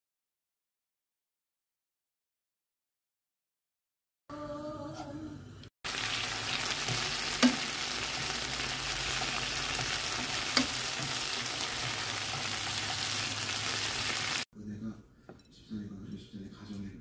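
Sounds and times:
kimchi sizzling in a pan: 5.8s - 14.5s.

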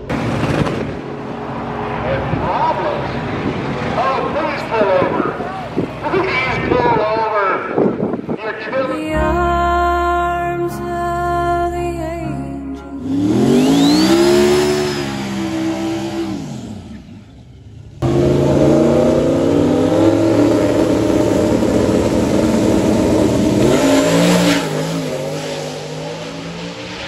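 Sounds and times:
drag cars launching: 13.0s - 27.0s
engine revving with rising whine: 13.0s - 27.0s.

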